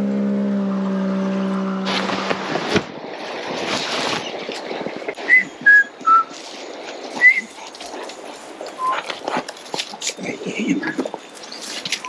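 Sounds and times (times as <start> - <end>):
footsteps through undergrowth: 1.9 - 12.0
short whistled notes: 5.2 - 6.4, 7.2 - 7.5.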